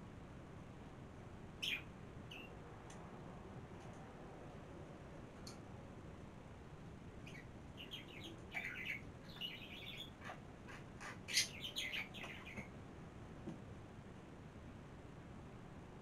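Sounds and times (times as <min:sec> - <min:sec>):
birds chirping: 0:01.6 - 0:02.5, 0:07.2 - 0:12.7.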